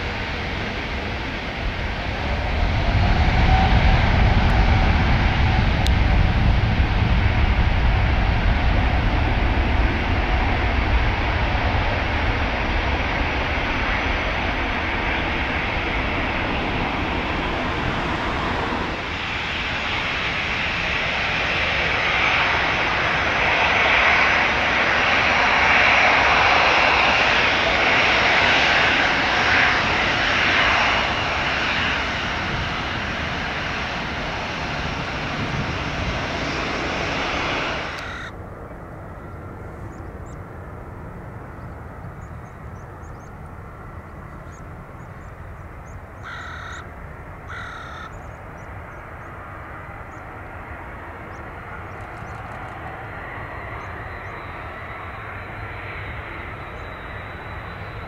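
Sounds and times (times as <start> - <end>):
steady rumble: 0.0 - 45.8
jet engines at take-off: 0.0 - 58.0.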